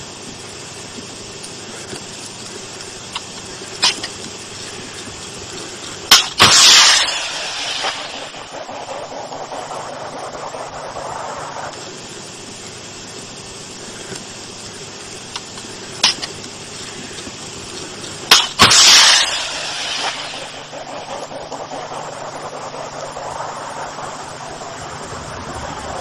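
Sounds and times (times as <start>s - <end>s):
background hiss: 0.0s - 26.0s
rushing hiss: 0.0s - 26.0s
sharp crack: 3.1s - 12.8s, 15.3s - 25.1s
missile launch bang: 6.1s - 10.8s, 18.3s - 21.3s.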